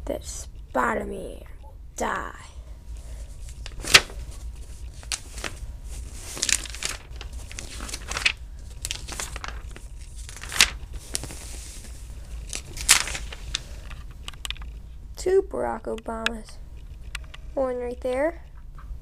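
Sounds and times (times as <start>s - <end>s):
paper pages rustling: 2.9s - 14.8s.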